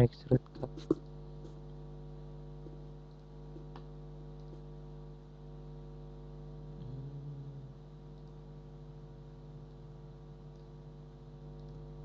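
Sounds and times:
electrical mains hum: 0:00.0 - 0:12.0
computer mouse clicks: 0:03.1 - 0:04.7, 0:08.1 - 0:08.4, 0:11.5 - 0:11.8.

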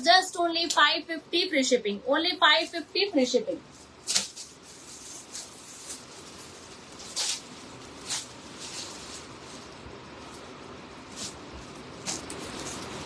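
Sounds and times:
clothing rustling: 0:03.2 - 0:13.0.

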